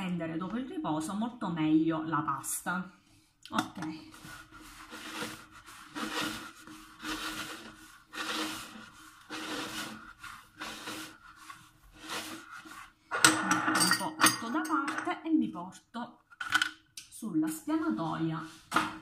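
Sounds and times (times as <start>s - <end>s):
dough scraping against plastic bowl: 4.0s - 13.1s.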